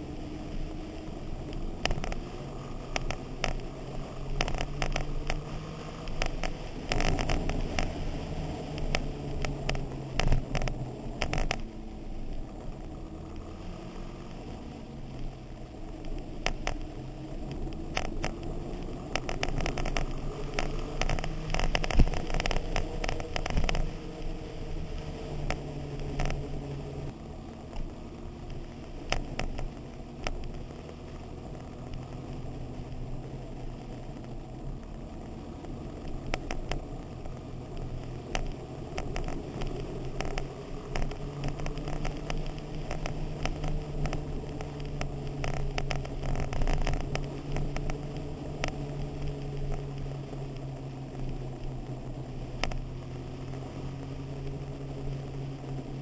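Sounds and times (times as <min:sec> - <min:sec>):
motorcycle engine running: 0:00.0 - 0:56.0
sharp clicks and rattles: 0:00.0 - 0:56.0.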